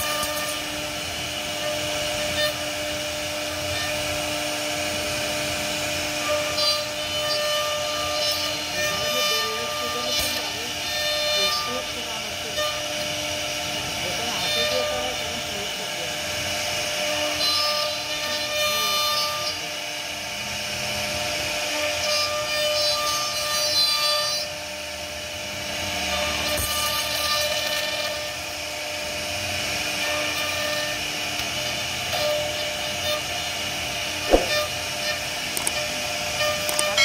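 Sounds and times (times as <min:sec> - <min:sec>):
router spindle whining: 0:00.0 - 0:37.0
rasping of wood being cut: 0:06.1 - 0:13.2, 0:17.1 - 0:19.7, 0:34.2 - 0:37.0.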